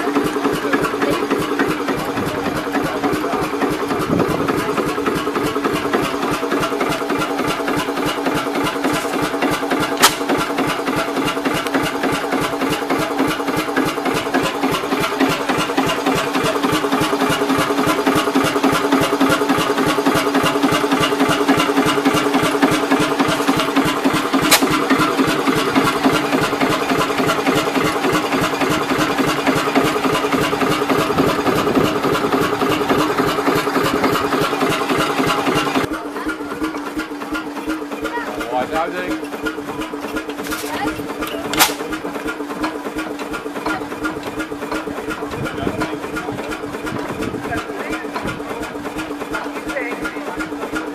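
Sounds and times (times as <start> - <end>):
diesel engine running: 0.0 - 50.9.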